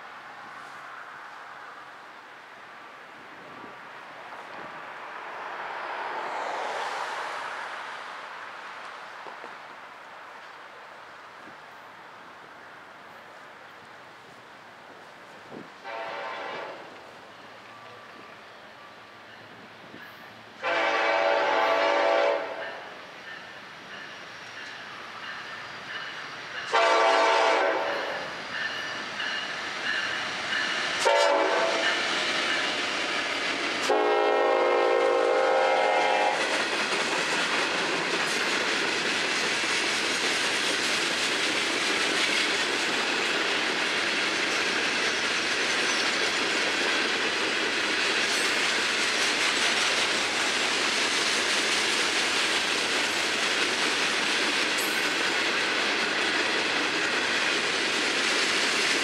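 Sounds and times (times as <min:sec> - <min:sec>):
train cars rolling on rails: 0:00.0 - 0:59.0
locomotive horn blasts: 0:15.8 - 0:16.9, 0:20.6 - 0:22.9, 0:26.7 - 0:28.2, 0:31.0 - 0:32.0, 0:33.8 - 0:36.4.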